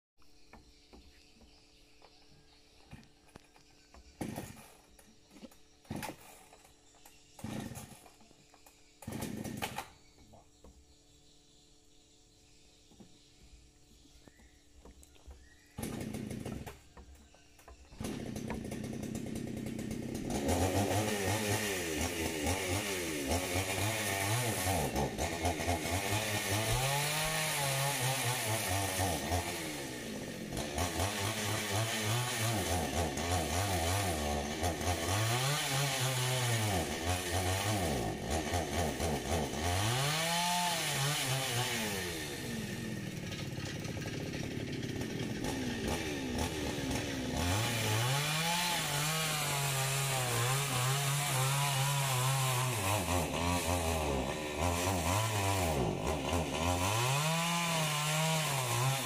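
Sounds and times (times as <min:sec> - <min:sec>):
chainsaw starting and revving: 0:04.1 - 0:10.1, 0:15.4 - 0:59.0.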